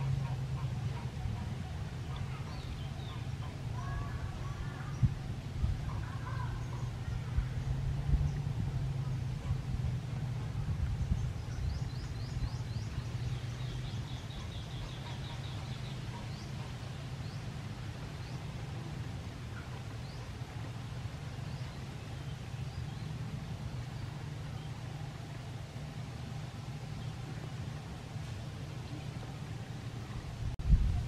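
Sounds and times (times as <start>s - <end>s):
birds chirping and trilling: 0.0s - 25.4s
low background rumble: 0.0s - 31.0s.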